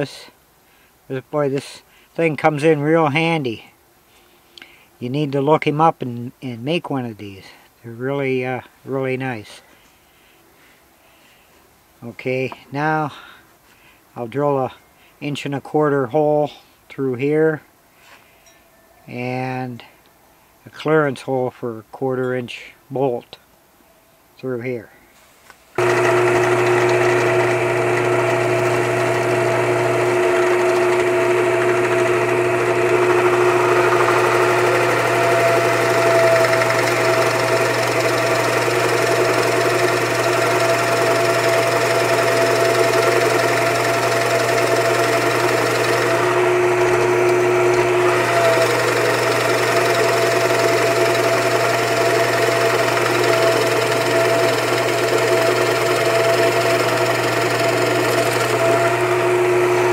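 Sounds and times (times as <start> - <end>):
drill bit boring through wood: 25.8 - 59.9
drill press motor humming: 25.8 - 59.9.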